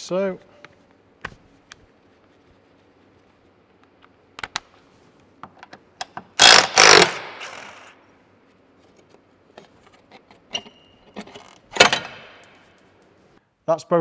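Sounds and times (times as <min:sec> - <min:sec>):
impact wrench hammering: 0:06.4 - 0:07.9
clinks of tool and bolts: 0:10.1 - 0:12.6.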